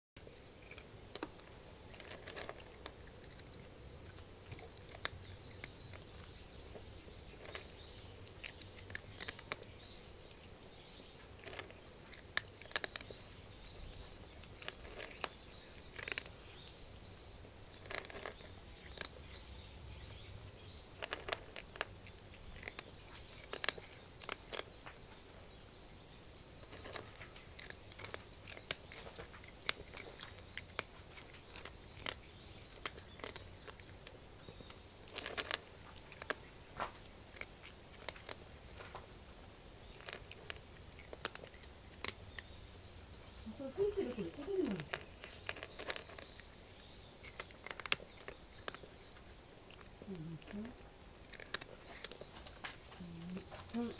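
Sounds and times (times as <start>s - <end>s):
cat crunching dry kibble: 0.2s - 53.9s.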